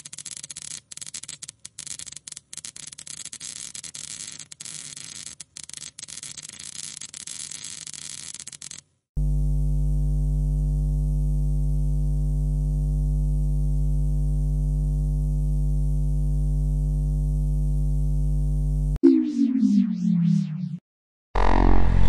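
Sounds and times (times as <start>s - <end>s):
electrical hum: 9.2s - 19.0s.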